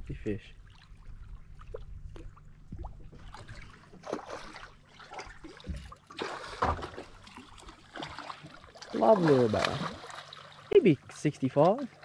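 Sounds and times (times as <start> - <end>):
fish thrashing water splashing: 1.6 - 10.8.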